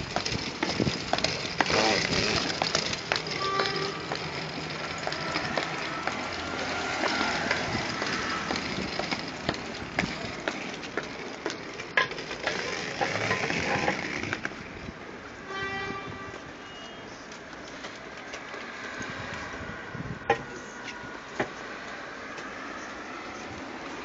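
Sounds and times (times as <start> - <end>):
wheels clicking over joints: 0.0 - 15.1
suitcase wheels rumbling over pavement: 0.0 - 15.4.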